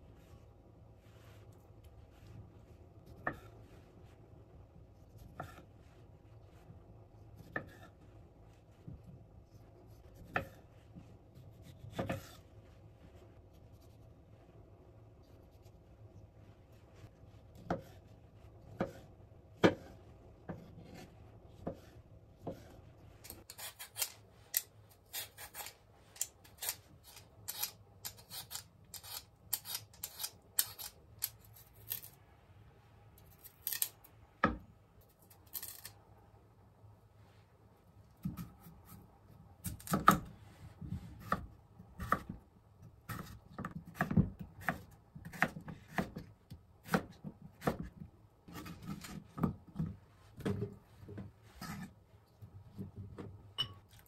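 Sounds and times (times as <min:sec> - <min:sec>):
knife cutting on wooden board: 0:42.0 - 0:42.3.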